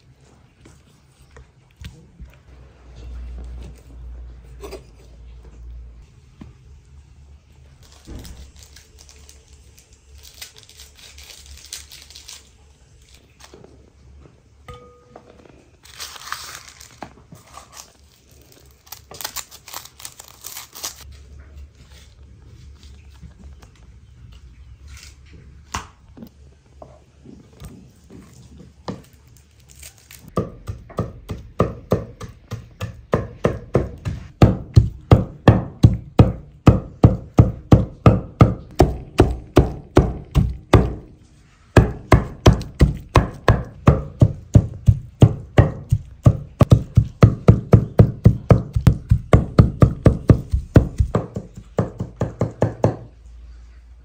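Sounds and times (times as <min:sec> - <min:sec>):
knife chopping on wooden board: 0:30.4 - 0:41.1, 0:41.8 - 0:53.0.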